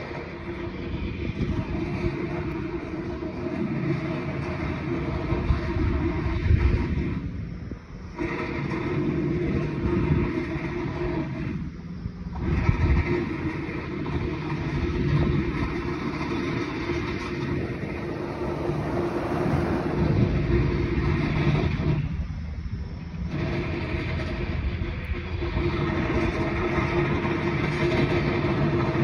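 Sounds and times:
low rumble with steady hum: 0.0s - 29.0s
car driving past: 17.2s - 21.8s.

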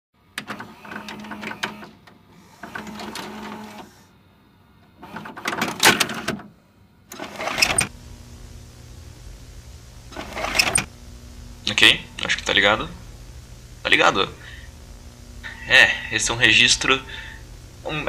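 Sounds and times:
mechanical whirring and clattering: 0.4s - 4.0s, 7.1s - 15.6s
low electrical hum with hiss: 6.6s - 18.0s.

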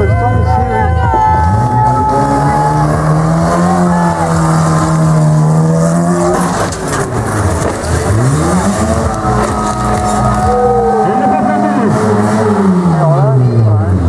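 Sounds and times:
car engine revving: 0.0s - 14.0s
car crashing and scraping: 2.1s - 13.2s.

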